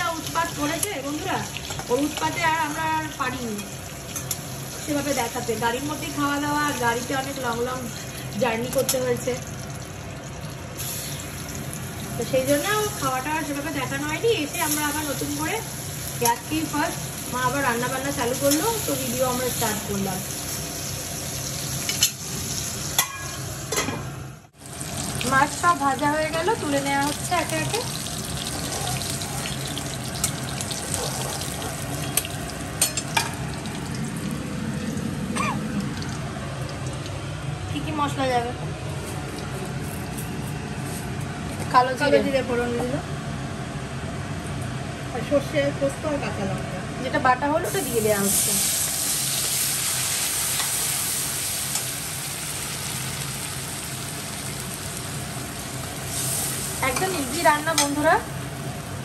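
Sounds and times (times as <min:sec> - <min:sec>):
hot oil sizzling in a pan: 0:00.0 - 0:23.8, 0:24.5 - 0:37.2, 0:47.6 - 0:59.0
paste sizzling in hot oil: 0:47.7 - 0:58.2.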